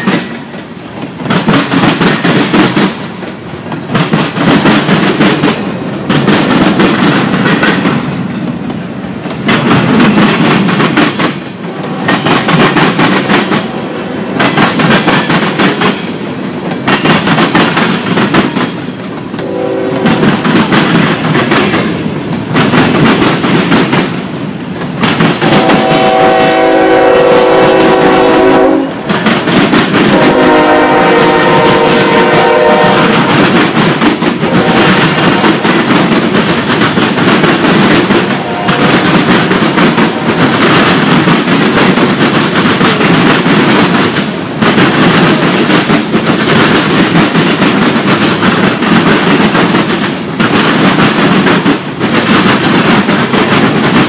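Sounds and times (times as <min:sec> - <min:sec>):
train wheels clacking over rail joints: 0:00.0 - 0:54.0
train horn: 0:19.4 - 0:20.4, 0:25.4 - 0:29.1, 0:30.1 - 0:33.5, 0:34.4 - 0:35.6, 0:38.2 - 0:39.1.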